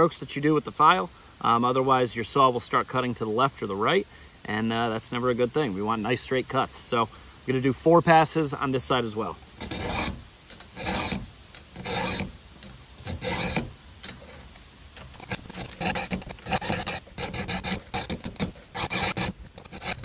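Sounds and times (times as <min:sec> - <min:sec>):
file rasping on chainsaw chain: 0:09.6 - 0:20.0.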